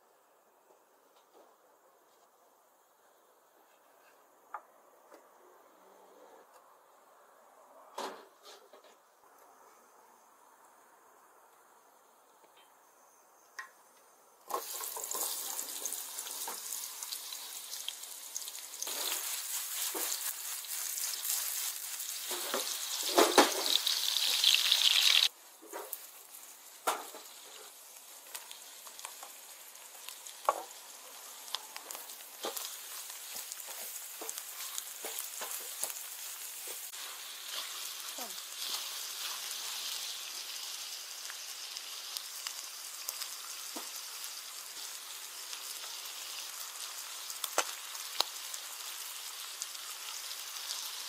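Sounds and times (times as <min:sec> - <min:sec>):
onions sizzling in hot oil: 0:14.4 - 0:51.0.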